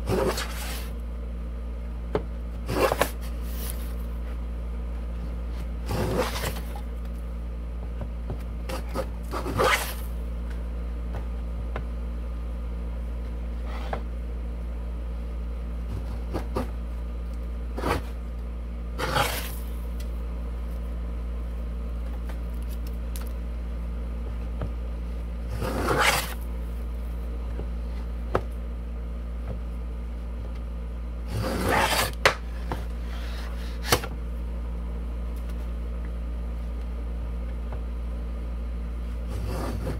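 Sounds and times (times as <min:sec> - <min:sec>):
steady low hum: 0:00.0 - 0:39.9
hand plane scraping wood: 0:00.1 - 0:00.9, 0:02.7 - 0:04.0, 0:05.9 - 0:06.8, 0:08.7 - 0:10.1, 0:19.0 - 0:19.6, 0:25.5 - 0:26.4, 0:31.3 - 0:34.1, 0:39.3 - 0:39.9.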